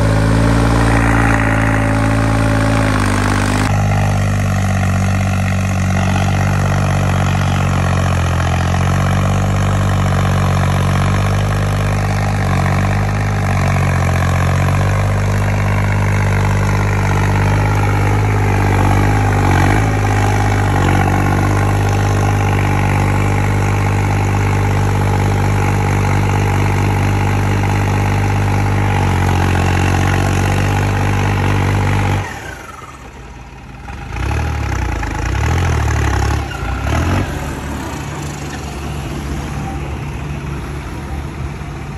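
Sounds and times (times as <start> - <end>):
tractor diesel engine running: 0.0 - 41.9.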